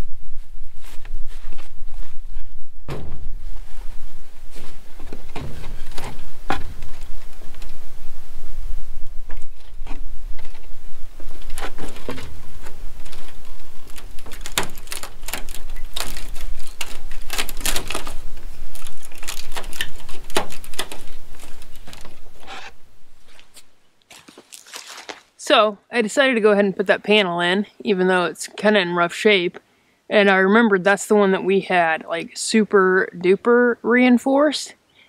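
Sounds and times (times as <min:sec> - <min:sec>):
plastic panel clicking and rattling: 0:13.9 - 0:22.2.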